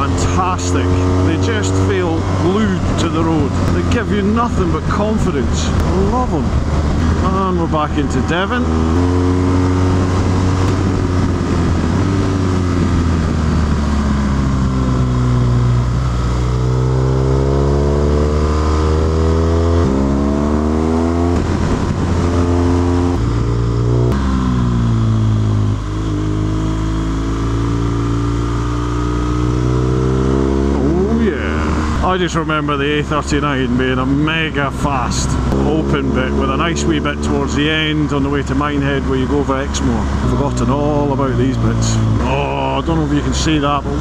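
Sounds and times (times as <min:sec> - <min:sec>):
motorcycle engine revving: 0:00.0 - 0:44.0
wind rush over microphone: 0:01.0 - 0:17.2, 0:18.0 - 0:24.2.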